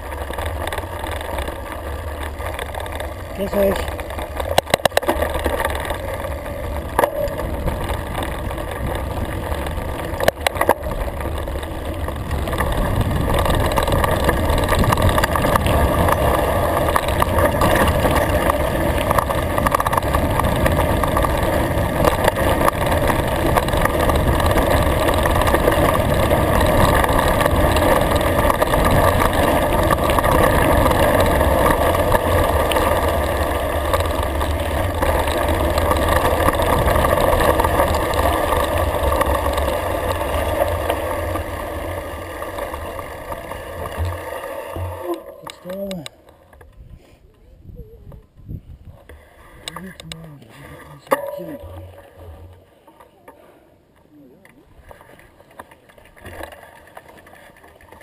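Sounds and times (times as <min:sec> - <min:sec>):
bike rattling knocks: 0:00.0 - 0:46.8
bike tyres rolling on gravel: 0:00.0 - 0:58.0
wind over microphone: 0:12.0 - 0:32.2, 0:46.6 - 0:49.8.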